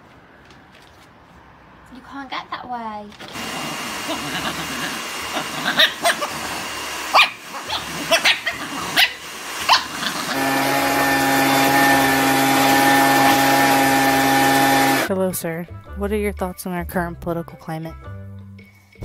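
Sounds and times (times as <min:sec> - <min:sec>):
motor hum: 0:03.2 - 0:15.1
dog barking: 0:04.4 - 0:06.5, 0:07.1 - 0:10.4.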